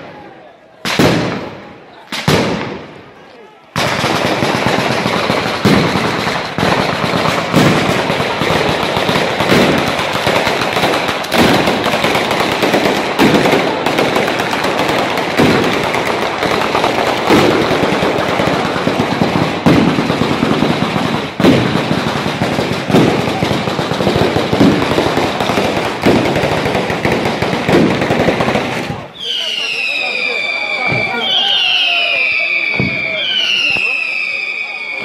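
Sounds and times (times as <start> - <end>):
firecrackers crackling: 0.0 - 35.0
heavy firecracker reports: 27.8 - 35.0.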